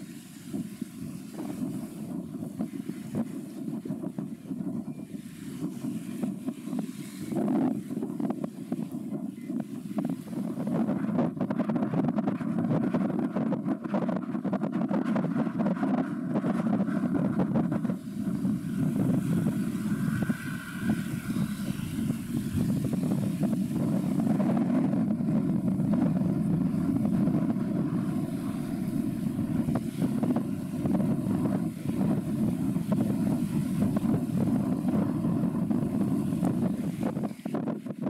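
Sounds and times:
boat engine noise: 0.0 - 38.0
wind on microphone: 0.0 - 38.0.

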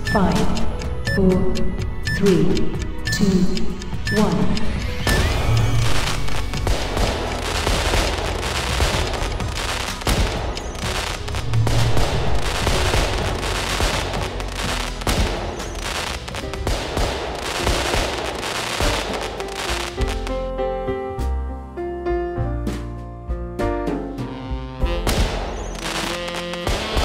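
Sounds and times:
fireworks crackling and popping: 5.0 - 20.4, 24.9 - 27.0
deep firework boom: 6.7 - 18.2.

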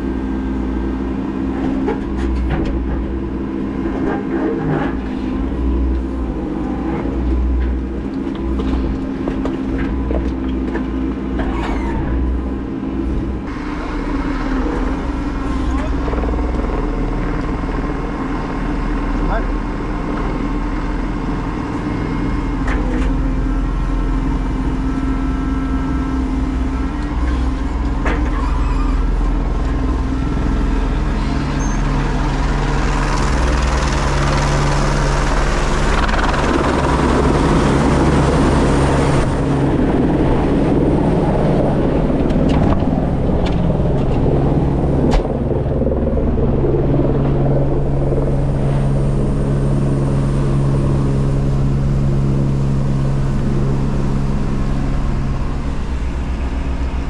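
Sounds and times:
diesel engine drone: 0.0 - 57.0
helicopter hovering: 12.0 - 27.2, 29.0 - 57.0.

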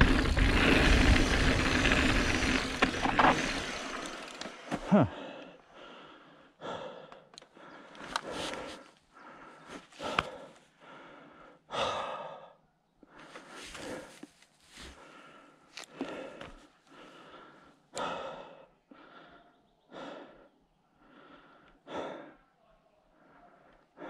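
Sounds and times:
person breathing hard: 4.8 - 22.5, 23.1 - 24.0.

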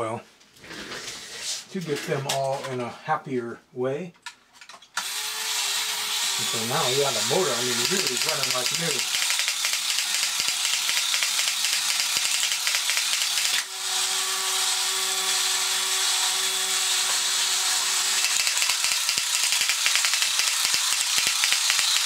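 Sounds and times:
toy motor clicking rattle: 5.0 - 13.7, 18.0 - 22.0.

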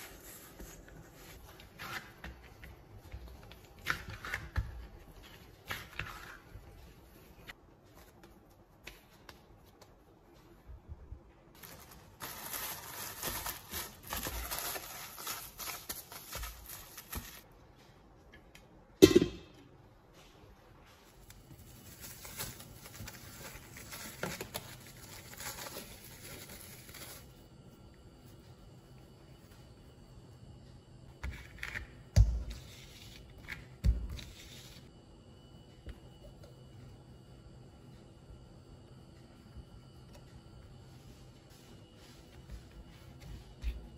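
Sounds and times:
plastic cling wrap crinkling: 11.6 - 17.4, 21.2 - 27.3.

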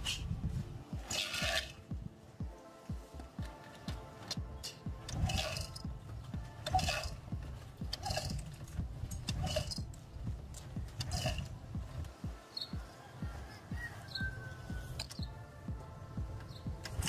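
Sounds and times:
metallic kick-starter clanking: 4.2 - 11.6.

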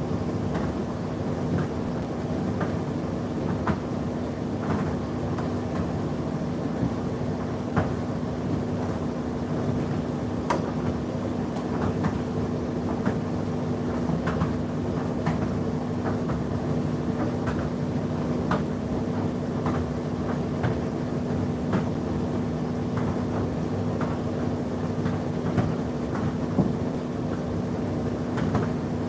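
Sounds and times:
tumble dryer motor and fan hum: 0.0 - 29.0.

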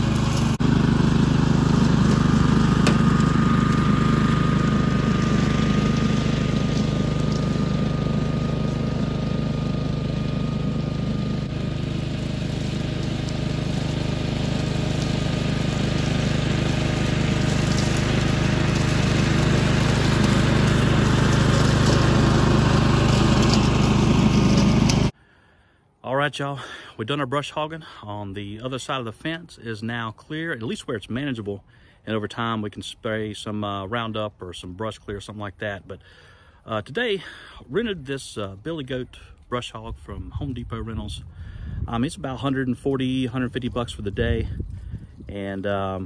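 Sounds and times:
brush cutter cutting grass: 0.0 - 25.2.

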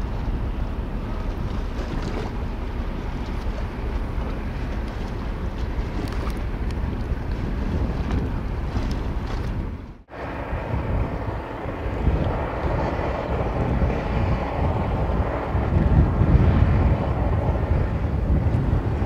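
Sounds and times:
ferry engine rumble: 0.0 - 19.0
wind buffeting microphone: 0.0 - 19.0.

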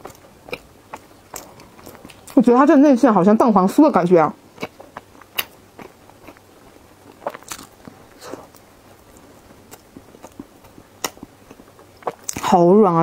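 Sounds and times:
wet chewing clicks and smacks: 7.1 - 12.5.

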